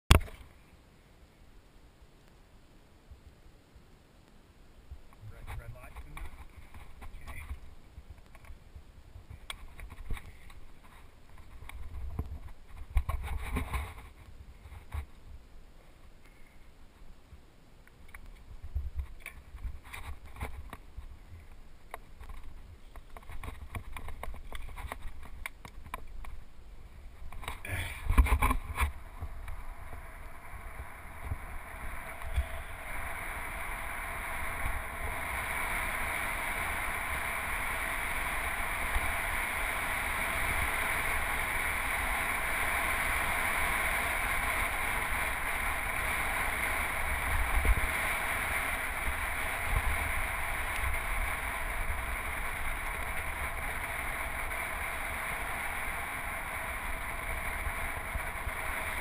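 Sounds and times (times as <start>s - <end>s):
rushing wind and road noise: 18.1s - 59.0s.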